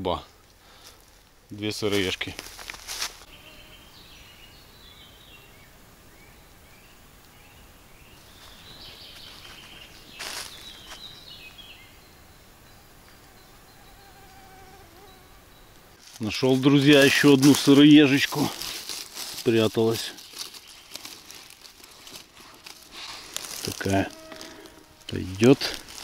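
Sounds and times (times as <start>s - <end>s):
insect buzzing: 0.3s - 16.2s, 20.2s - 26.0s
scuff of movement: 2.0s - 3.3s, 8.4s - 11.1s, 16.0s - 24.7s.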